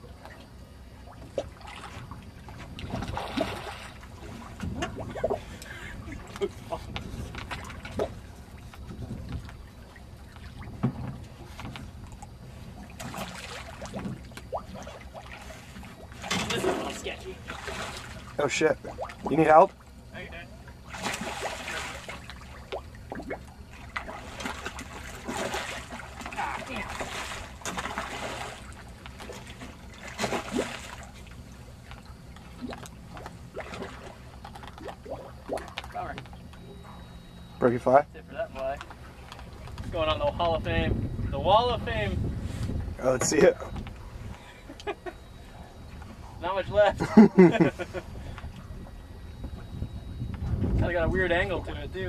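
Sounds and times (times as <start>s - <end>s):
steady low hum: 0.0s - 52.0s
water lapping against boat: 0.0s - 52.0s
fish splashing: 0.3s - 10.8s, 11.9s - 20.0s, 20.6s - 37.4s
wind on microphone: 4.2s - 9.7s, 39.5s - 44.4s, 47.8s - 52.0s.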